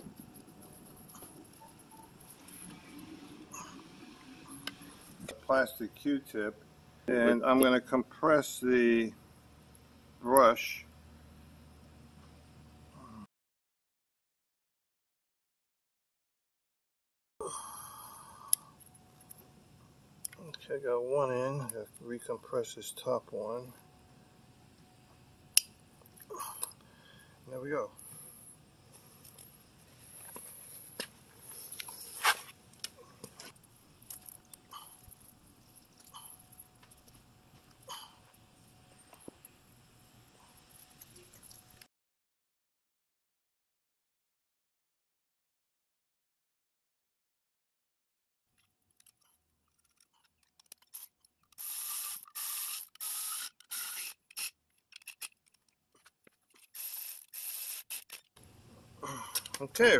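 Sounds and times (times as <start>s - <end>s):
metal scrape: 31.5s - 32.6s
electric ratchet running: 51.6s - 54.5s, 56.6s - 58.2s
screwdriver clicks on metal parts: 52.9s - 55.7s
light clicks of part handling: 59.3s - 59.7s.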